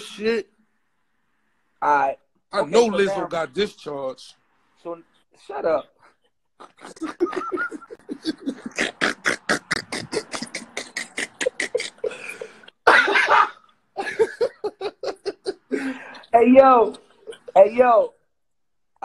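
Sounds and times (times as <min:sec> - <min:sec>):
person laughing heartily: 0:06.6 - 0:16.2, 0:17.0 - 0:17.6.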